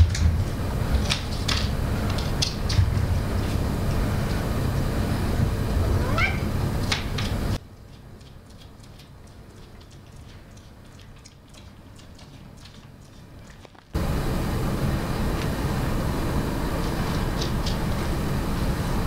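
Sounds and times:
steady low rumble: 0:00.0 - 0:07.6
cat meowing: 0:06.0 - 0:06.6.

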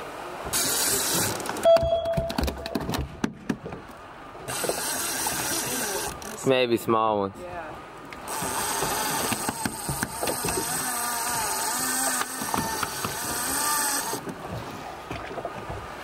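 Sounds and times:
fishing reel whirring: 0:04.5 - 0:06.4, 0:08.3 - 0:14.2.

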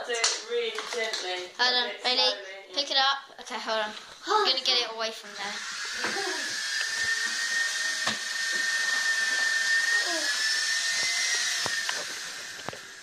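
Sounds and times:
toy helicopter motor whining: 0:05.2 - 0:13.0.

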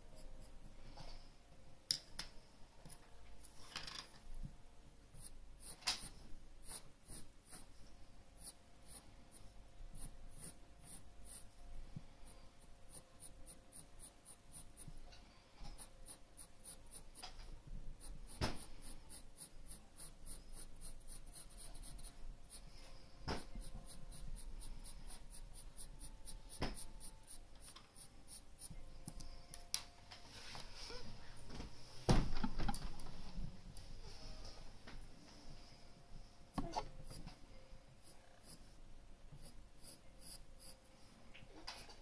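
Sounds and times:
pencil scratching on paper: 0:05.2 - 0:07.8, 0:08.4 - 0:11.6, 0:12.2 - 0:15.0, 0:15.7 - 0:22.8, 0:23.4 - 0:28.8, 0:38.0 - 0:38.6, 0:39.4 - 0:40.8.

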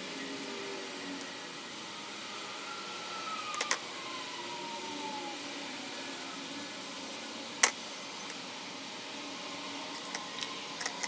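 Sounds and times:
toothbrush scrubbing metal parts: 0:09.9 - 0:11.0.

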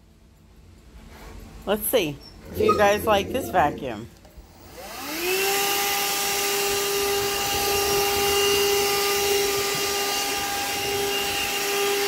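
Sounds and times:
vacuum cleaner motor whine: 0:04.5 - 0:12.0.

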